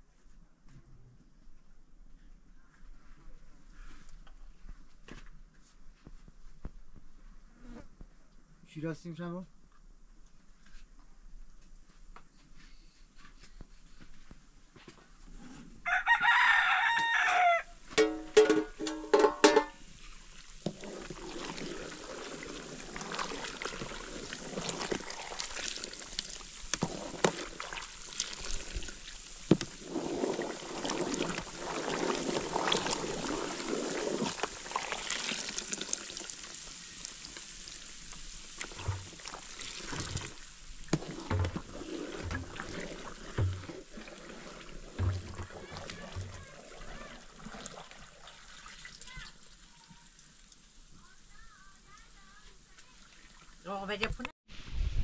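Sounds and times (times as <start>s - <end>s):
rooster crowing: 15.8s - 17.8s.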